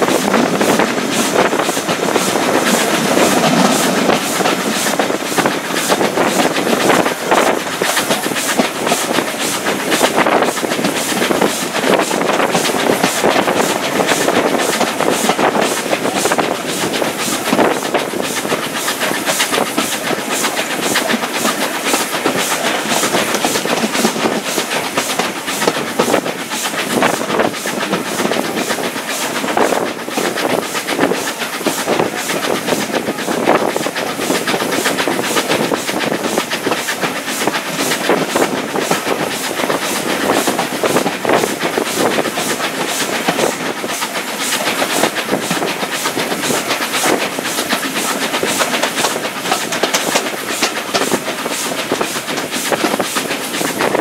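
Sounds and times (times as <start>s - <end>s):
train rushing noise: 0.0s - 54.0s
wheels clattering on rails: 0.0s - 54.0s.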